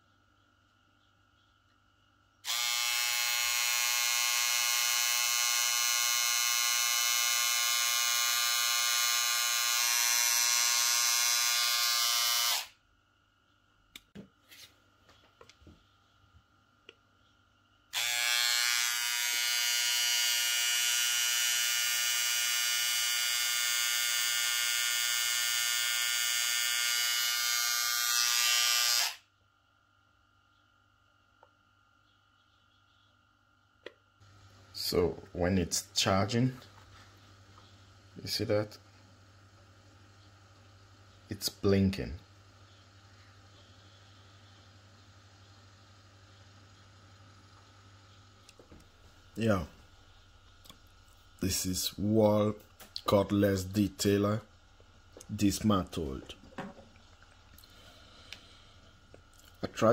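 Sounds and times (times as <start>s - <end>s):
hair trimmer buzzing: 2.4s - 12.8s, 17.9s - 29.2s.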